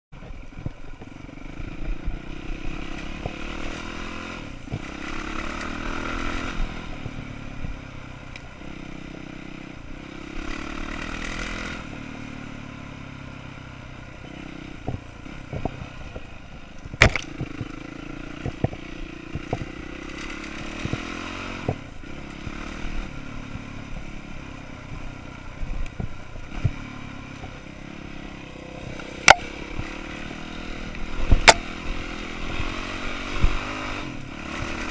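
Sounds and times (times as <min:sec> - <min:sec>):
dirt bike engine revving: 0:01.3 - 0:07.8, 0:08.6 - 0:13.4, 0:14.2 - 0:34.9
bike knocks and rattles: 0:14.8 - 0:19.8.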